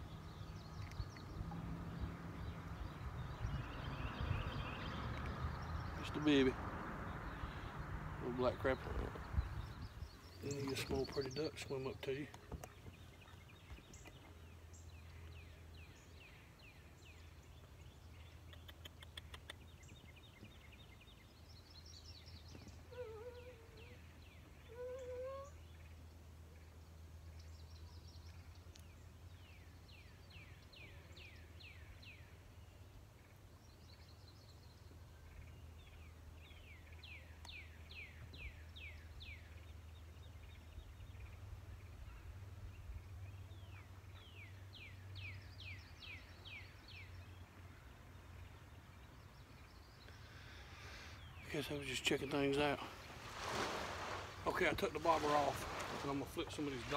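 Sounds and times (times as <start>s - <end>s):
short lower bird calls: 21.8s - 25.8s.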